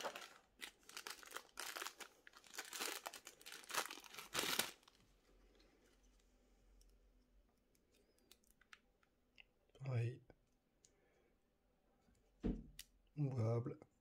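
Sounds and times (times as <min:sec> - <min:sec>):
plastic packaging crinkling: 0:00.0 - 0:05.1.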